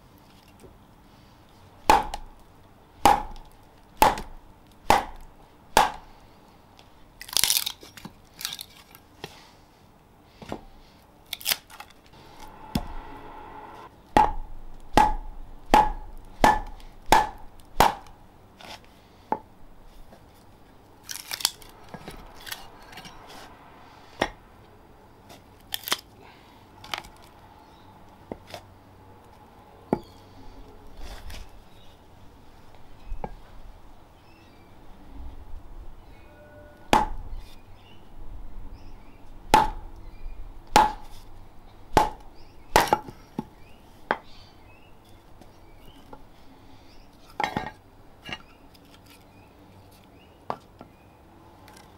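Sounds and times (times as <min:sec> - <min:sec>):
wood cracking: 0:07.2 - 0:09.0, 0:21.0 - 0:22.6
wooden club striking froe: 0:14.2 - 0:18.1.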